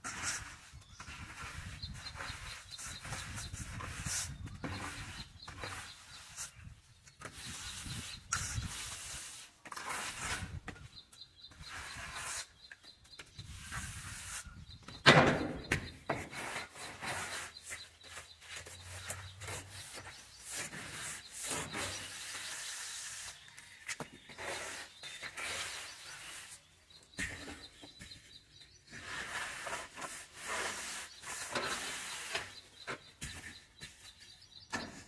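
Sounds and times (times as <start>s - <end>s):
wooden straightedge scraping plaster: 0.0s - 35.0s.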